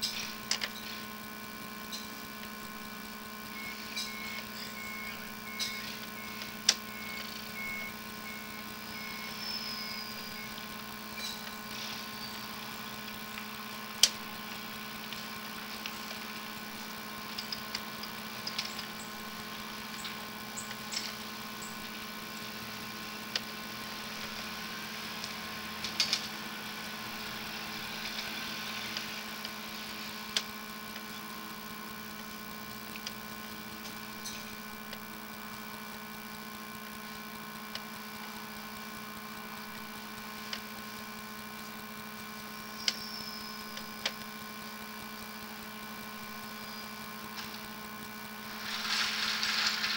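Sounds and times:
steady electrical hum: 0.0s - 49.9s
sharp clicks and ticks: 1.8s - 9.4s, 10.2s - 24.5s, 30.2s - 46.4s.

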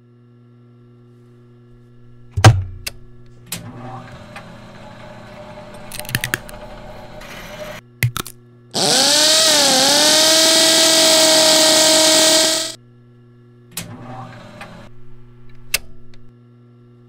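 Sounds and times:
machine hum: 1.9s - 7.8s, 8.8s - 12.8s
pneumatic hiss: 8.8s - 12.8s.

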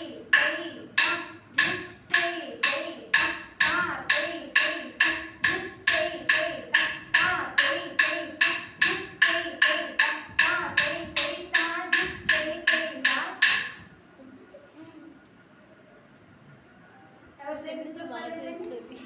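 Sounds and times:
sharp ringing percussive strokes: 0.3s - 14.5s.

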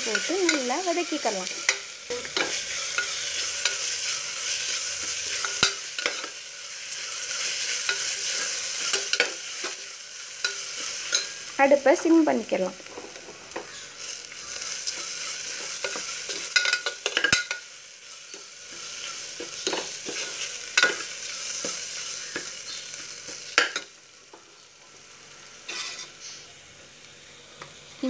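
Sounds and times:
onions sizzling in hot oil: 0.0s - 28.0s
metal spoon scraping a pot: 1.5s - 6.4s, 25.7s - 26.2s.

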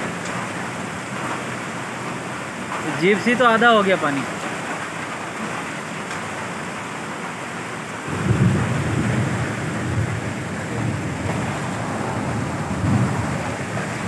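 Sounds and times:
floodwater rushing: 0.0s - 14.0s
rain: 0.0s - 14.0s.

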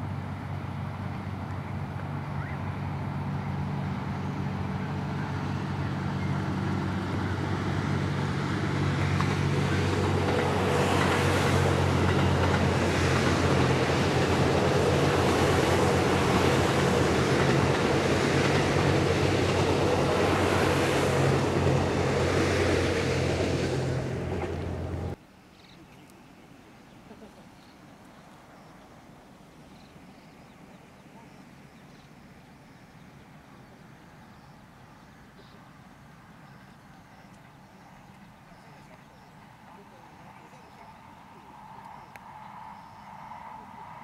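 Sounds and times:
train diesel engine hum: 0.0s - 25.2s
wheels on rails: 6.5s - 25.2s.

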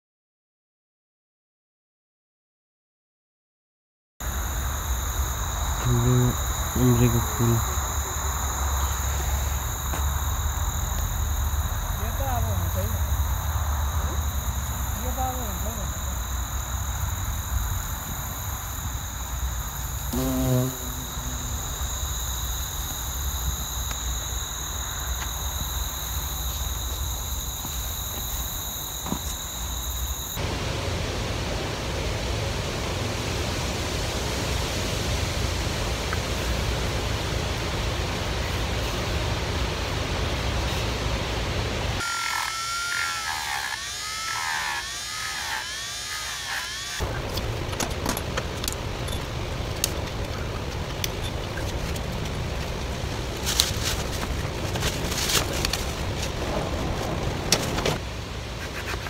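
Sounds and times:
even hiss: 4.2s - 27.5s
rotary tool sanding wood: 42.0s - 47.0s.

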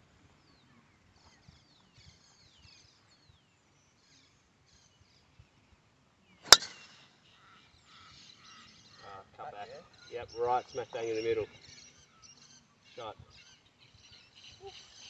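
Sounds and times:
faint bird chirps: 6.2s - 15.0s
golf club striking ball: 6.4s - 7.0s.

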